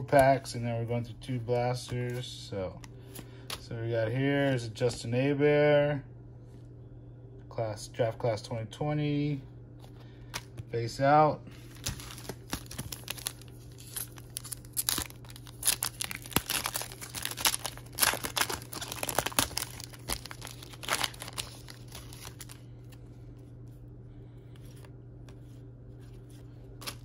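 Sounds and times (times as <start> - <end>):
foil wrapper tearing and crinkling: 11.6 - 22.6, 26.7 - 27.0.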